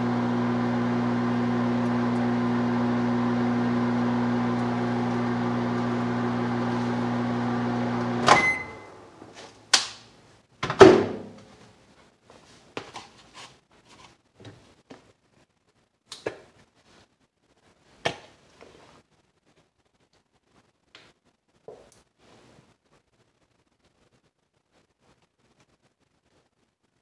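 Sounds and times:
microwave oven humming: 0.0s - 9.1s
microwave click: 7.9s - 8.9s.

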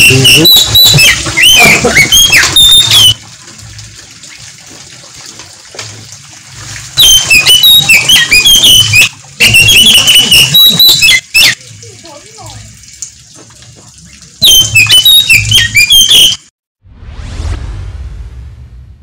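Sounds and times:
bird singing whistles and chirps: 0.1s - 3.2s, 7.0s - 11.2s, 14.4s - 16.4s.

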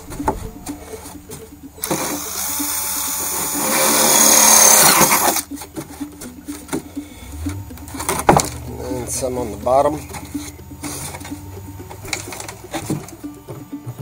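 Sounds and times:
cordless drill boring through plastic: 1.8s - 5.5s.

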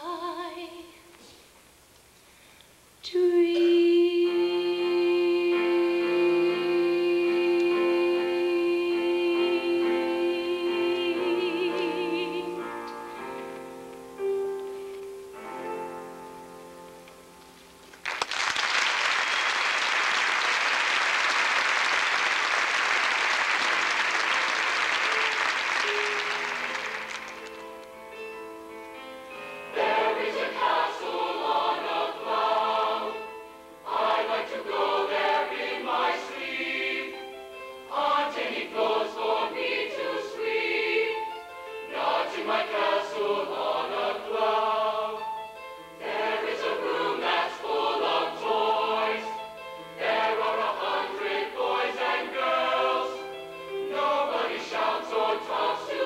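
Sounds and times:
woman singing with vibrato: 0.0s - 1.1s, 3.0s - 12.7s
audience applauding: 17.9s - 28.0s
soft instrumental notes: 25.2s - 31.6s.

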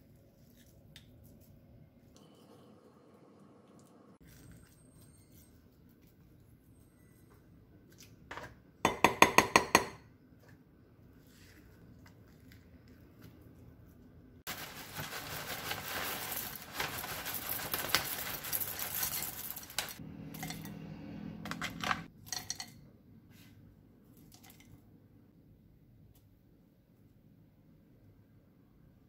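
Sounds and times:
cereal pouring into mug: 14.5s - 20.6s.

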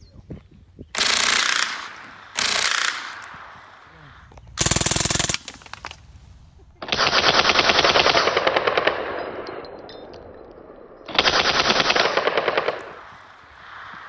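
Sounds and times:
suppressed automatic gunfire: 1.0s - 3.8s, 4.6s - 6.0s, 6.8s - 9.4s, 11.1s - 13.1s.

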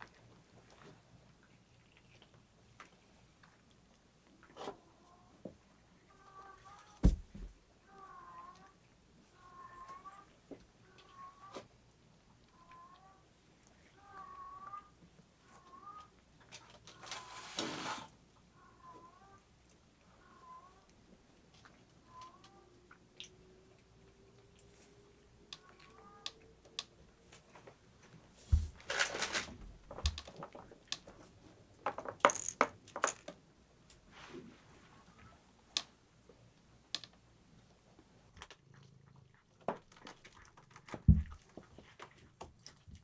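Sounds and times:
cats knocking and scuffling: 7.0s - 7.6s
thump and rustle: 7.0s - 7.6s.

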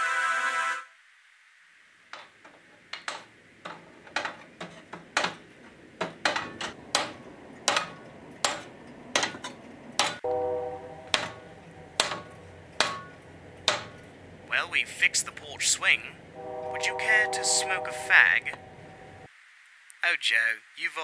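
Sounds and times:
hammer striking with metallic ring: 10.0s - 14.1s.

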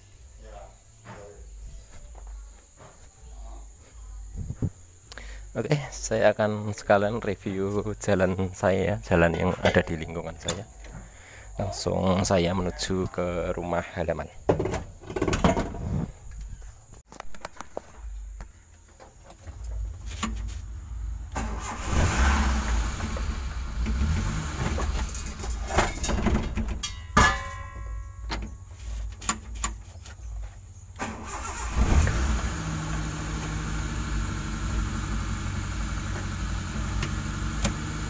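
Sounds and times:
car engine idling: 19.0s - 26.8s, 30.7s - 38.0s
car starter cranking: 21.2s - 27.0s, 31.0s - 38.0s.

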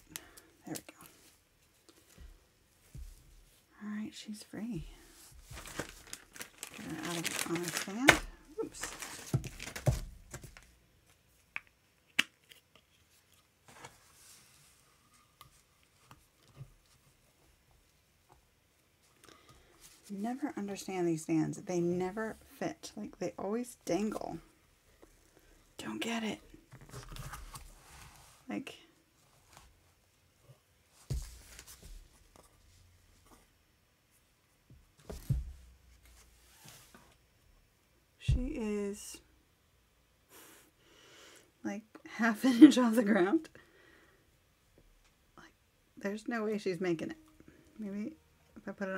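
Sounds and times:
rustling: 4.4s - 11.5s
plastic packaging crinkling: 5.4s - 10.7s.

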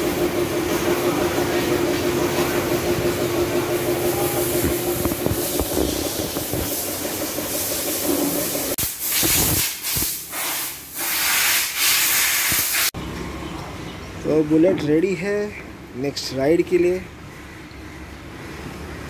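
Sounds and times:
steady hum: 0.0s - 8.9s
pressure washer spraying water: 0.0s - 12.9s.

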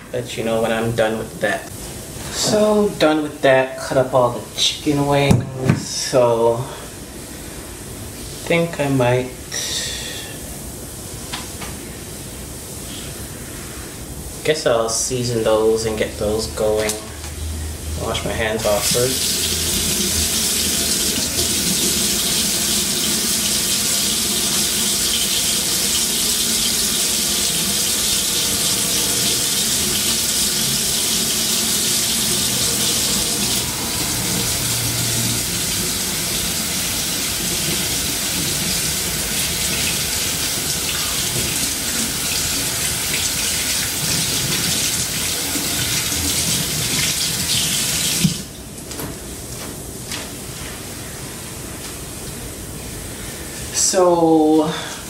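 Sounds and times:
tap water running: 18.1s - 48.6s.

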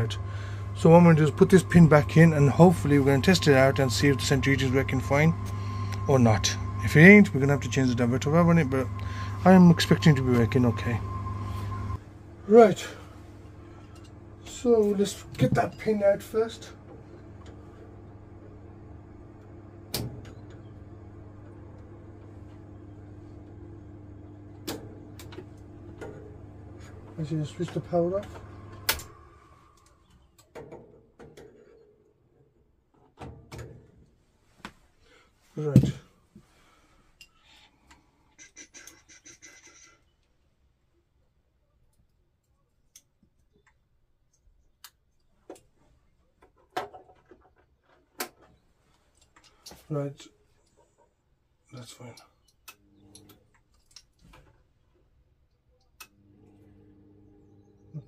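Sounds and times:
steady low hum: 0.0s - 30.0s
sharp clicks of boiler valve: 19.9s - 20.5s, 28.7s - 29.1s.

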